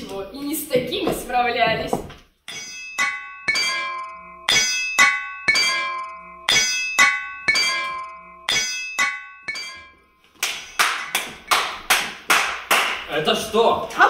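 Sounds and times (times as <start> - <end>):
hammer striking an anvil: 2.5 - 13.1.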